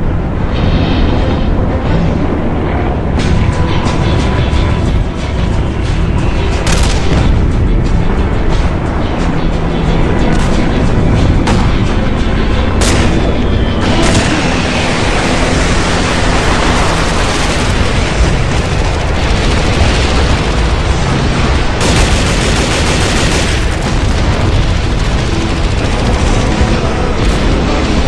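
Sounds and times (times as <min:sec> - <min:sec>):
explosions rumbling: 0:00.0 - 0:28.0
sharp explosion cracks: 0:06.6 - 0:07.6, 0:12.8 - 0:28.0.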